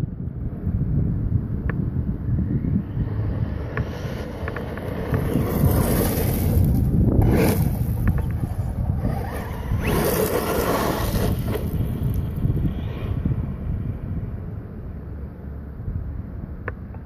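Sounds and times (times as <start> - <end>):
wind buffeting microphone: 0.0 - 17.0
rc truck driving over gravel: 2.5 - 14.2.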